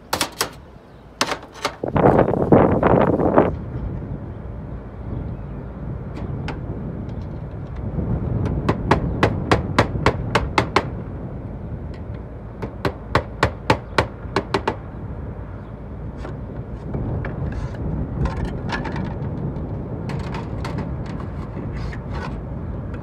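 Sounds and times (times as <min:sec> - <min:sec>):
hammer nailing slates: 0:00.1 - 0:00.6, 0:01.2 - 0:01.8.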